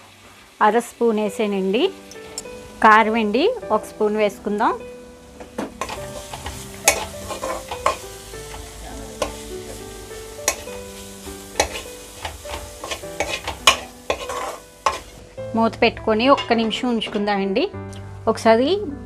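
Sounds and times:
food sizzling in oil: 0.0s - 16.6s
spoon scraping a pan: 5.8s - 15.2s.

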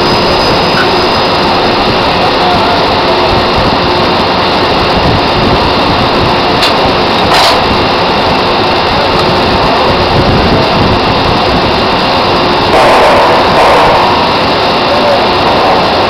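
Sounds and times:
loud machinery noise: 0.0s - 16.0s
burst of noise: 12.6s - 16.0s.

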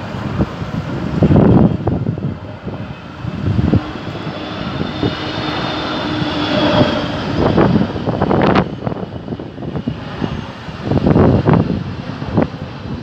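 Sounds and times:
jet plane passing overhead: 0.0s - 13.0s.

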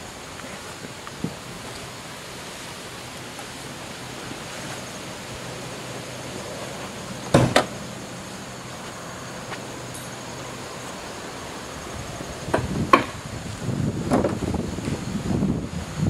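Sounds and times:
wind noise on microphone: 0.0s - 2.3s, 11.7s - 16.0s.

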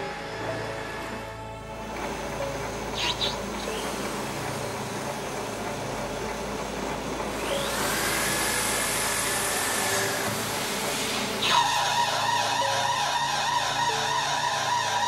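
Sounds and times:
lathe running: 0.0s - 15.0s
threading tool hissing and whining: 0.0s - 15.0s.

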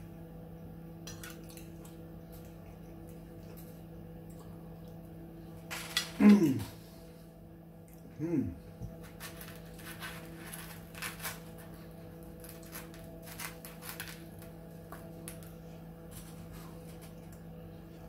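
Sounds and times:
steady low hum: 0.0s - 18.0s
bread crust crackling as torn: 8.9s - 17.4s.

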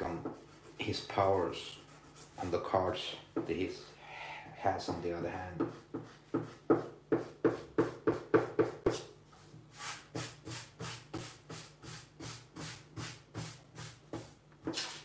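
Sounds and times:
eraser rubbing on paper: 0.0s - 2.7s, 9.7s - 15.0s
hand brushing across paper: 14.8s - 15.0s.

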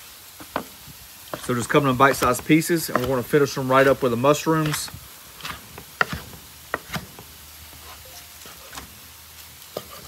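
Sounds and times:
knife chopping on wooden board: 1.3s - 8.0s, 8.6s - 9.0s.

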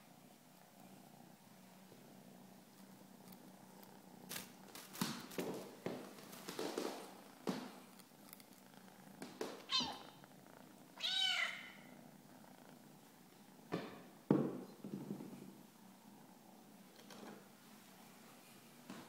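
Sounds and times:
kitten purring: 0.0s - 18.9s
high-pitched kitten meows: 9.7s - 10.1s, 11.0s - 11.8s.

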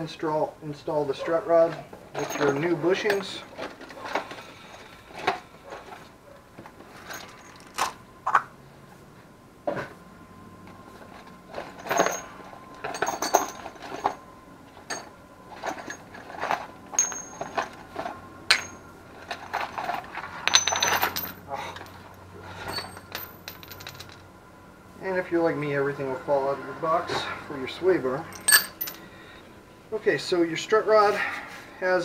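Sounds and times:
metal hardware clinking and rattling: 1.7s - 6.0s, 6.7s - 8.0s, 11.1s - 14.2s, 14.8s - 24.3s, 28.3s - 29.1s.

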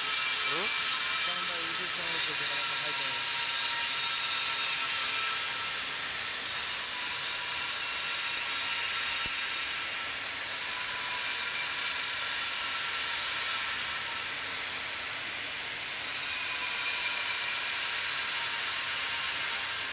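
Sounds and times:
angle grinder grinding steel: 0.0s - 5.7s.

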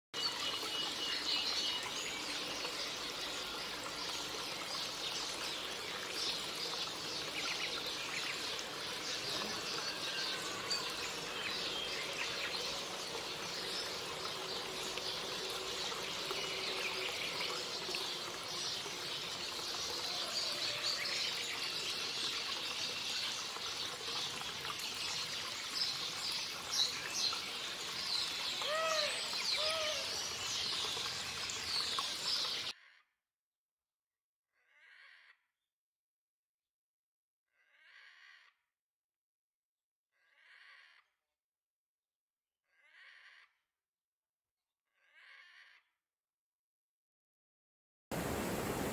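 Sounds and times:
small birds chirping: 0.2s - 32.7s
water trickling: 0.2s - 32.7s.

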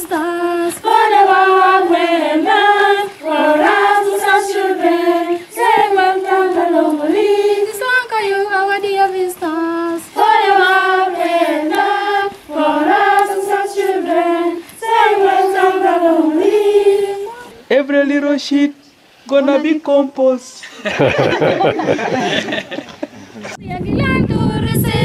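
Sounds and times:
girls singing unaccompanied: 0.0s - 17.7s, 23.6s - 25.0s.

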